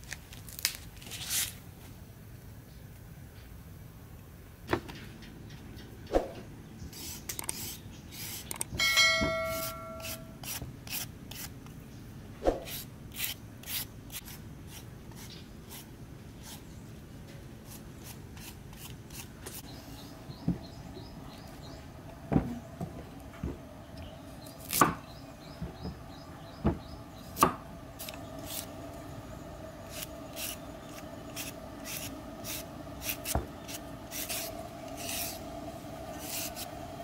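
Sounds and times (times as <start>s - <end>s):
vegetable peeler scraping carrot: 7.0s - 8.7s, 9.6s - 11.5s, 12.5s - 16.7s, 17.6s - 19.6s, 28.0s - 28.7s, 29.9s - 35.5s, 36.2s - 36.8s
brief ringing tone: 8.8s - 10.3s.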